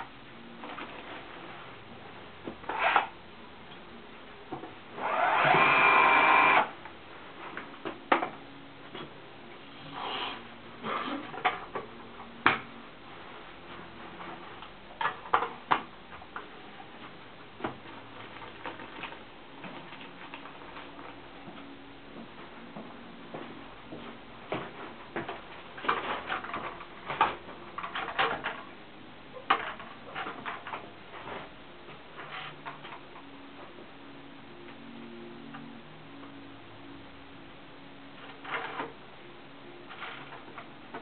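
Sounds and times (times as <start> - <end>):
power drill whining: 5.0 - 6.7.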